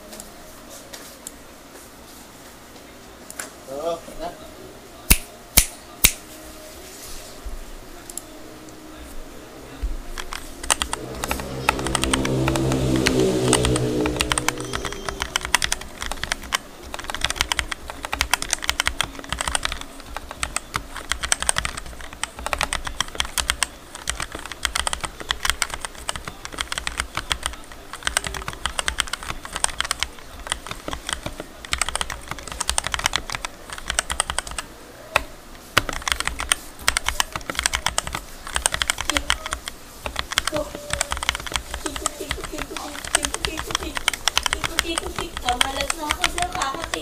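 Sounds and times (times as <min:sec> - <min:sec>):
mechanical keyboard key clacks: 0:15.2 - 0:34.6.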